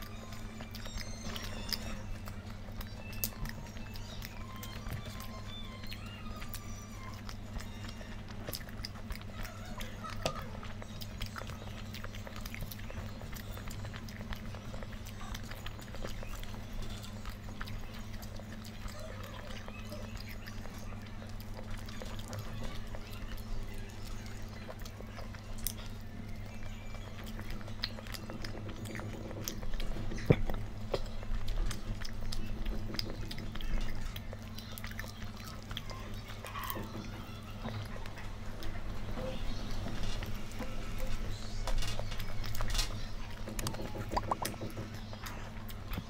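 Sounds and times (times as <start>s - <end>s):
person chewing food: 0.0s - 46.0s
steady low hum: 0.0s - 46.0s
mouth clicks and smacks: 43.3s - 45.9s.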